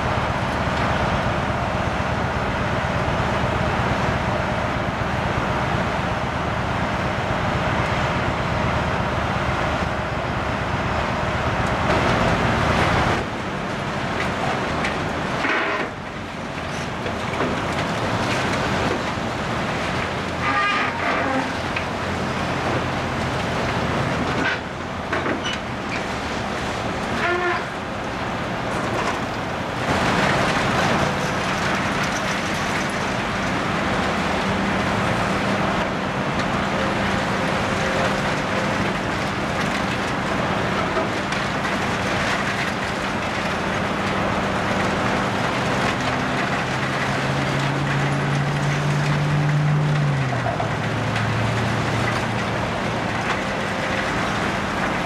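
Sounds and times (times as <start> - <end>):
excavator diesel engine: 0.0 - 55.0
metal and debris crunching: 11.8 - 27.7, 28.5 - 55.0.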